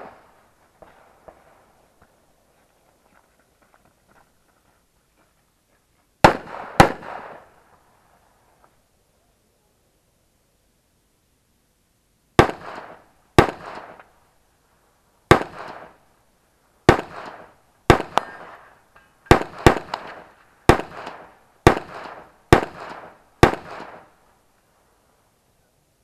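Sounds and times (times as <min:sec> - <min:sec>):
rifle shots echoing: 0:06.2 - 0:07.6, 0:12.4 - 0:14.0, 0:15.3 - 0:16.0, 0:16.9 - 0:18.7, 0:19.3 - 0:24.2.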